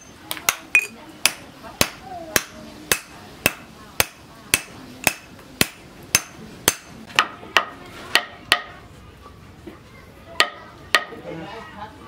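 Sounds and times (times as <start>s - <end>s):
hammer striking steel anvil: 0.0s - 8.7s
hammer tapping wooden handle: 0.0s - 8.7s, 10.4s - 11.1s.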